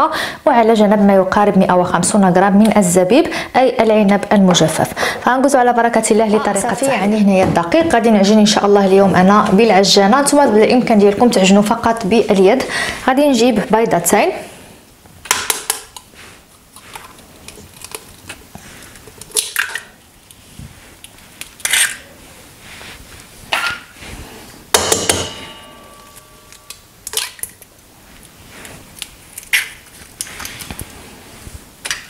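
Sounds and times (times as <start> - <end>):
metal bowl ringing: 24.8 - 26.8.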